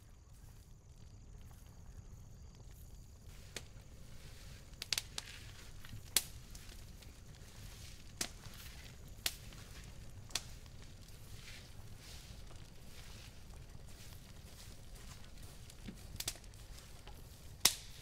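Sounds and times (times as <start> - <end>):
sharp cracks: 4.7 - 7.4, 8.1 - 11.1, 15.7 - 16.5, 17.6 - 18.0.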